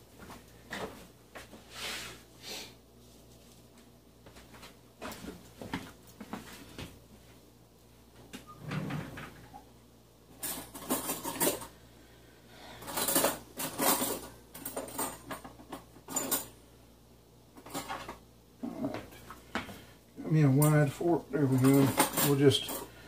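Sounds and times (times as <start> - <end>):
kitchen utensils and dishes clinking: 10.4 - 11.8, 12.8 - 16.6, 21.4 - 23.0.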